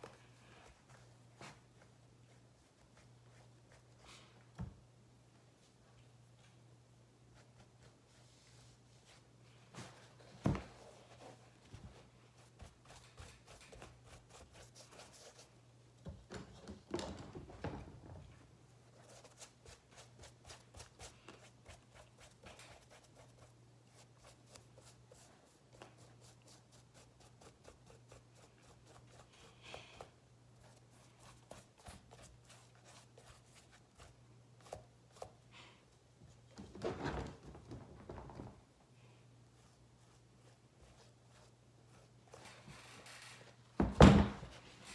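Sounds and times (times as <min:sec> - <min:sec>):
paintbrush dabbing strokes: 0:18.9 - 0:35.4, 0:39.4 - 0:42.4.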